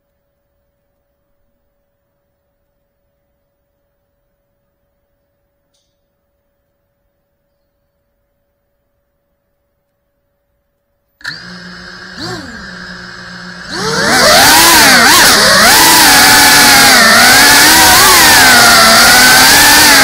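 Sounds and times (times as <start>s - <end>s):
drone motors whining: 11.2s - 20.0s.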